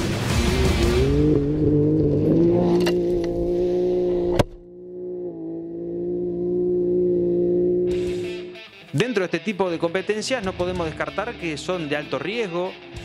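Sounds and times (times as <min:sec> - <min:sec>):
race vehicle engine at high revs: 0:00.0 - 0:08.6.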